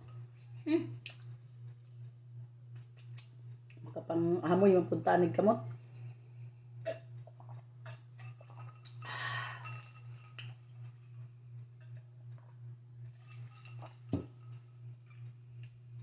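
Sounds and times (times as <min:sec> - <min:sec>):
low hum: 0:00.0 - 0:16.0
person drinking from a glass: 0:06.8 - 0:10.6.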